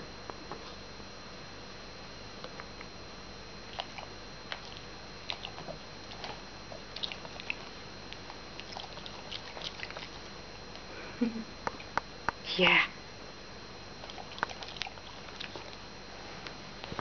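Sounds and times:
puppy sniffing and licking: 3.7 - 10.3, 14.0 - 15.9.

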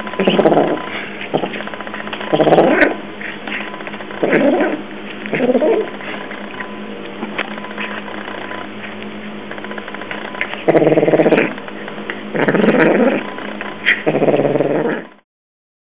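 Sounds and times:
cat growling: 0.0 - 1.7, 2.3 - 3.1, 4.2 - 5.9, 10.6 - 11.6, 12.3 - 13.3, 13.9 - 15.2.

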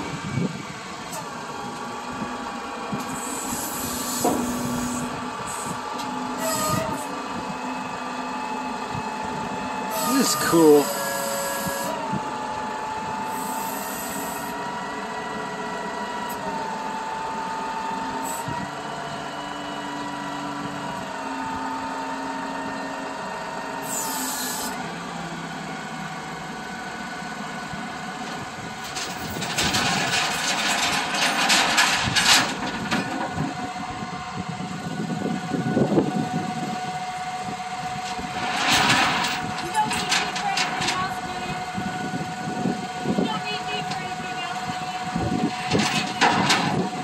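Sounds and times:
hydraulic system whining: 9.4 - 12.3
rough clattering noise: 28.8 - 33.4, 38.1 - 41.2, 45.6 - 46.9.

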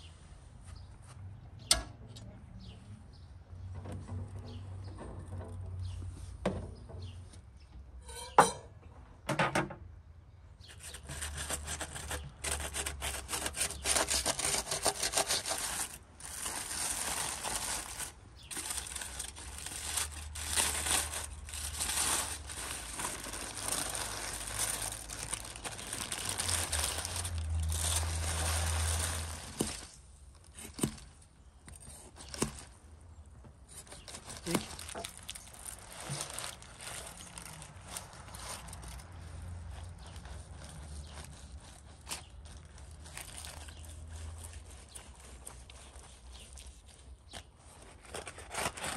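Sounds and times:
aluminium foil crinkling: 10.7 - 32.9, 33.7 - 48.9
baking paper rustling: 10.7 - 32.9, 33.6 - 48.9.

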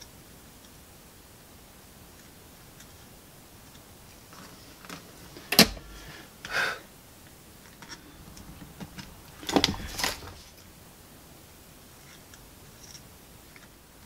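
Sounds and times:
scraping rustle: 7.7 - 10.7.

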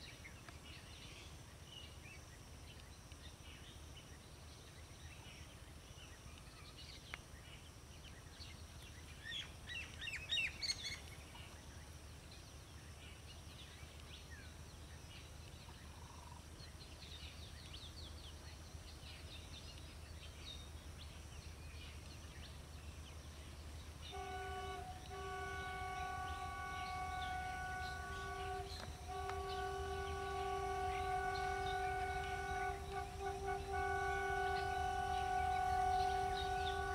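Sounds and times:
low steady rumble: 16.8 - 36.9
birds chirping: 24.0 - 36.9
locomotive horn blasts: 24.1 - 36.9.

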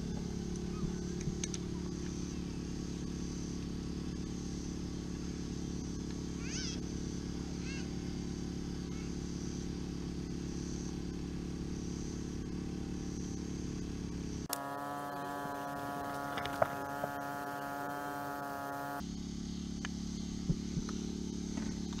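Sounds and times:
electrical hum: 14.2 - 19.0
higher-pitched buzz: 14.4 - 19.0.

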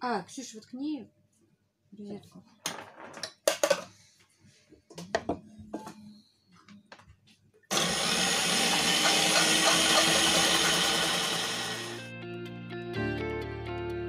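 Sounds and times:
electric grinder shredding carrots: 7.7 - 12.1.

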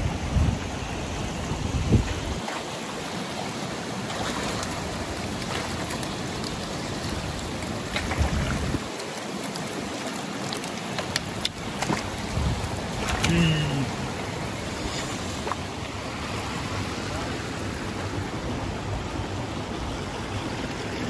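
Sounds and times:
splashes and drips: 1.2 - 21.0
water pouring into pond: 2.1 - 18.4.

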